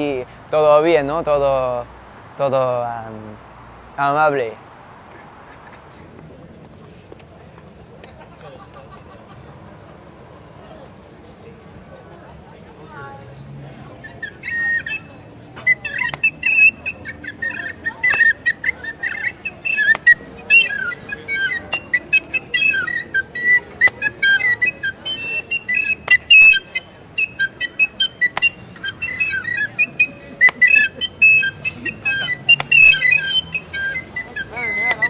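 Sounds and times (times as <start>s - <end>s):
whistle chirping: 14.0s - 35.0s.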